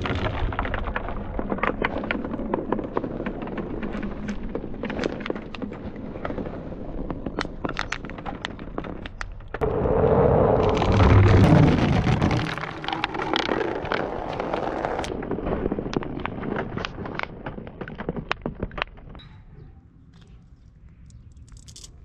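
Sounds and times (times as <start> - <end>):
marbles rolling and clacking: 21.0 - 21.9.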